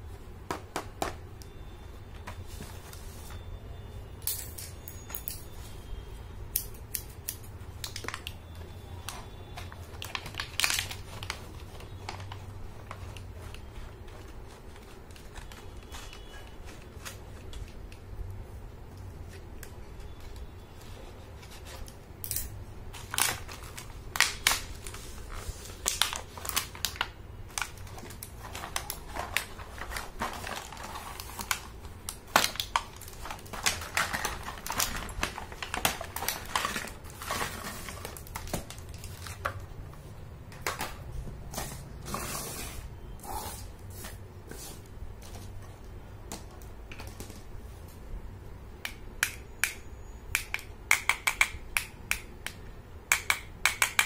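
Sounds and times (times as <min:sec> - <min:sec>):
plastic packaging crackling: 0:06.8 - 0:18.1, 0:19.2 - 0:42.3.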